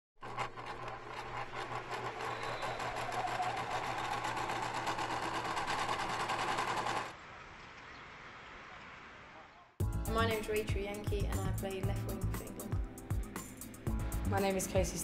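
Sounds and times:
sewing machine stitching: 0.2s - 7.1s.

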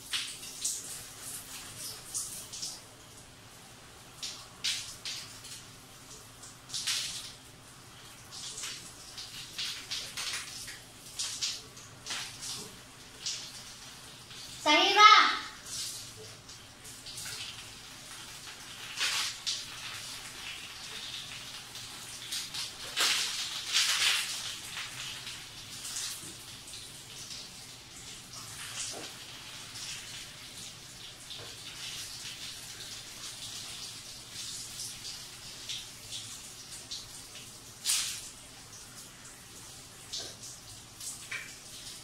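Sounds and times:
water splashing on tiled floor: 0.0s - 42.0s.

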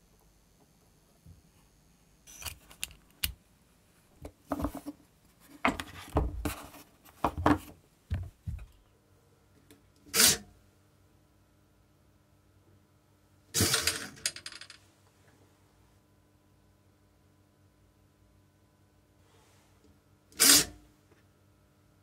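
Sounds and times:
faint steady hum: 0.0s - 22.0s
plastic parts clicking and scraping: 2.3s - 3.4s.

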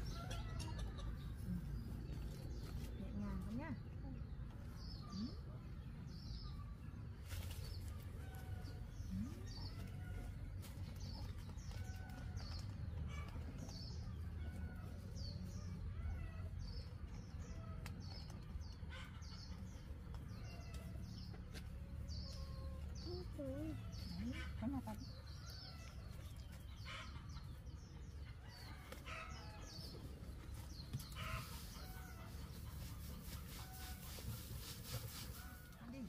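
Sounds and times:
birds chirping: 15.2s - 36.0s.

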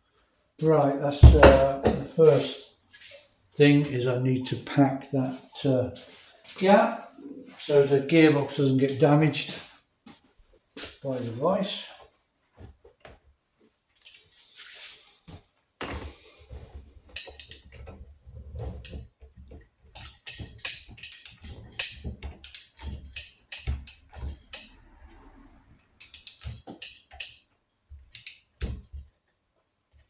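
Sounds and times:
metal chain jingling and clinking: 17.2s - 17.8s, 20.0s - 24.8s, 26.0s - 27.5s.

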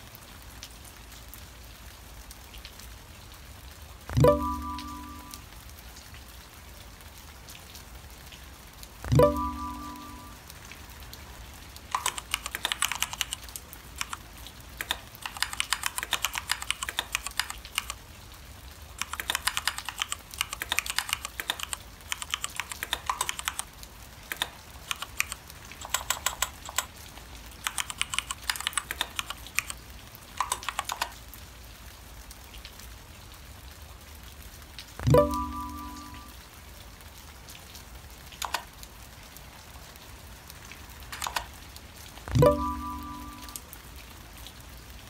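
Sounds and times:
typing on computer keyboard: 11.9s - 14.2s, 14.8s - 18.0s, 19.0s - 26.9s, 27.6s - 29.8s, 30.4s - 31.2s, 38.4s - 38.7s, 41.1s - 41.5s.

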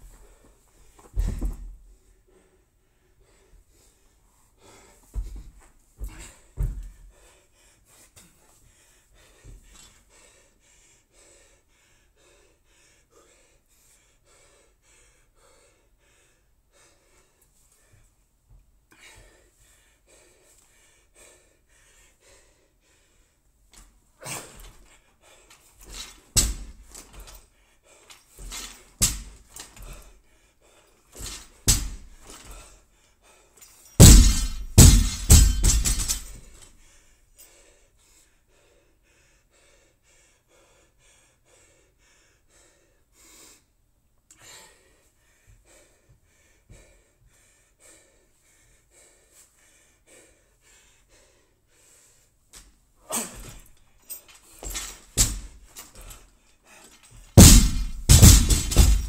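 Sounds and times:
dropped barbell bouncing and rattling: 25.8s - 27.4s, 28.4s - 30.0s, 31.2s - 32.6s, 34.0s - 36.6s, 54.6s - 56.1s, 57.4s - 59.0s
barbell knocking on rubber floor: 57.4s - 59.0s.

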